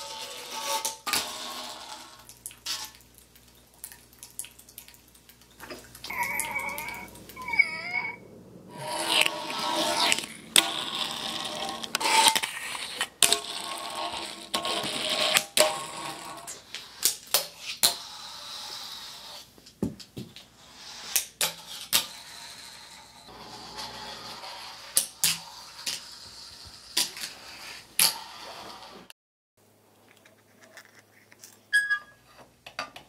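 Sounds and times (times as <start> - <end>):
fingerboard wheels rolling on concrete: 0.0 - 2.9, 6.1 - 19.5, 20.2 - 29.1.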